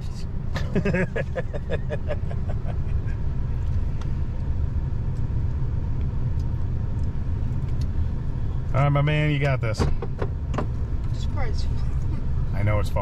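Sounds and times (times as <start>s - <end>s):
engine and tyres rumbling: 0.0s - 13.0s
people laughing: 0.6s - 3.2s.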